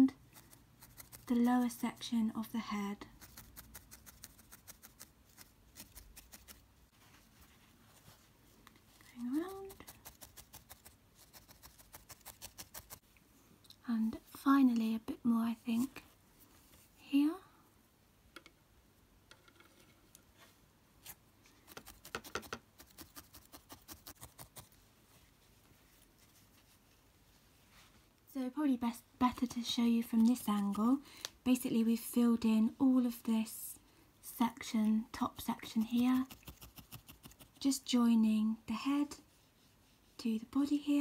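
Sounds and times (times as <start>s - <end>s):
felting needle poking wool: 0.0s - 2.2s, 3.0s - 7.2s, 8.0s - 13.0s, 21.0s - 24.8s, 29.3s - 31.0s, 34.5s - 41.0s.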